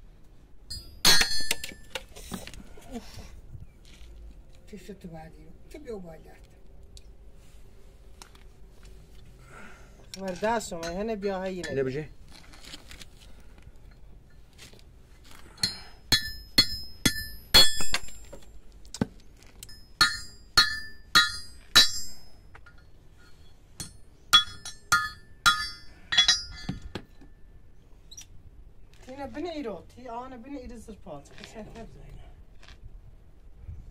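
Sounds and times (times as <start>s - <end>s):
hammer striking steel rod: 15.6s - 18.2s, 19.7s - 27.0s.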